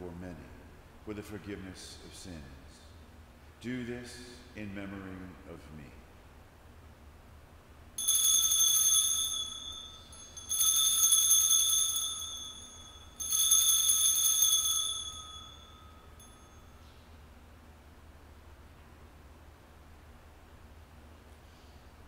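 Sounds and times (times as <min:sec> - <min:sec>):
bell ringing: 0:08.0 - 0:16.8.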